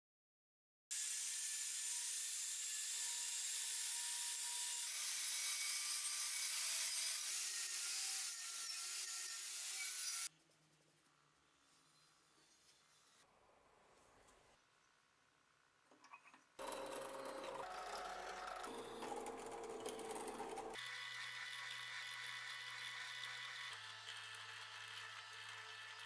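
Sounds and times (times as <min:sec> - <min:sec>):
faint motor hum: 0:16.6 - 0:26.0.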